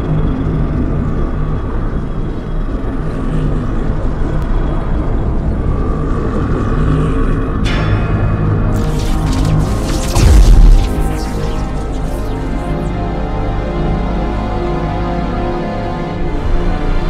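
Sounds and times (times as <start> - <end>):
deep rumbling drone: 8.6 - 14.2
brief whoosh: 8.8 - 13.1.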